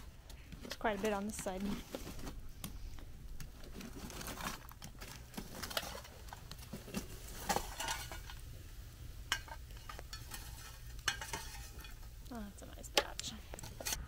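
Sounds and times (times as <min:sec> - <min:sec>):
wood fire crackling: 0:00.0 - 0:14.0
metal tongs clinking and scraping: 0:06.8 - 0:08.5, 0:09.2 - 0:12.3.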